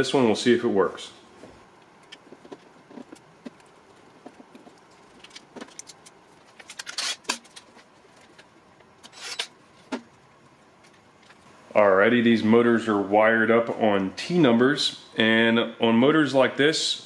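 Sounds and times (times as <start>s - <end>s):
rustling scrapes: 1.4s - 10.0s
clicks and rattles of wires and tools: 1.8s - 10.2s, 10.8s - 11.5s.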